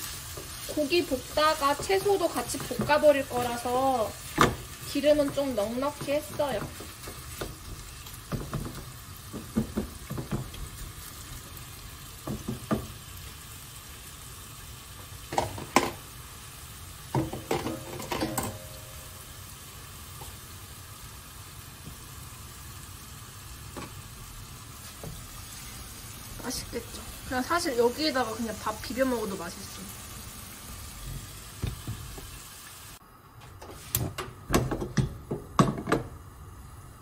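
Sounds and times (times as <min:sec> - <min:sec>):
meat sizzling in a frying pan: 0:00.0 - 0:33.0
spatula scraping and knocking pan: 0:00.3 - 0:10.8, 0:17.1 - 0:18.9.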